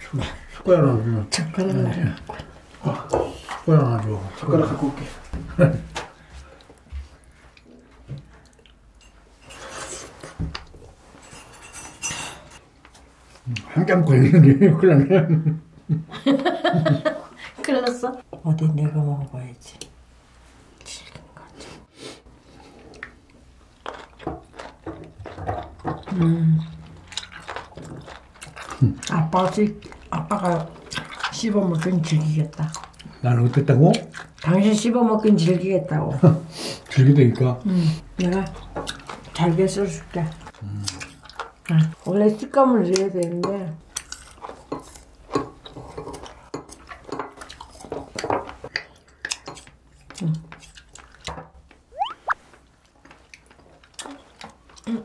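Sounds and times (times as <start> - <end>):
cutlery clinking on dishes: 9.0 - 10.0, 11.2 - 12.6.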